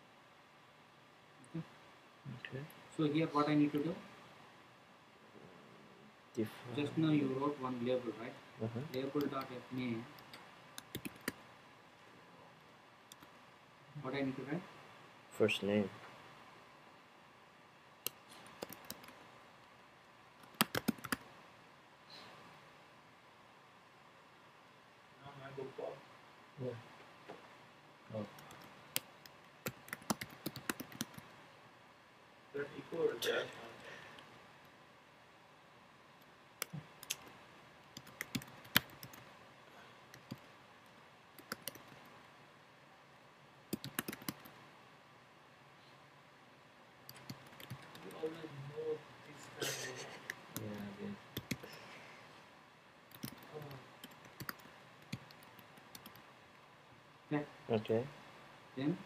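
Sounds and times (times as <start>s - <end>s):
computer keyboard typing: 10.8s - 11.4s, 18.5s - 19.2s, 20.4s - 21.2s, 28.3s - 31.3s, 37.9s - 39.3s, 40.1s - 40.5s, 41.4s - 42.0s, 43.7s - 44.6s, 47.1s - 48.3s, 51.4s - 51.7s, 53.1s - 56.2s.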